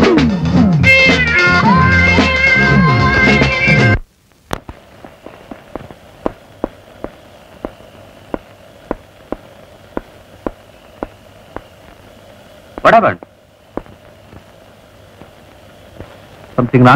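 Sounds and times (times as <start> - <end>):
faint steady hum: 0.3 - 16.9
footsteps clicking: 4.6 - 12.0, 12.8 - 14.6.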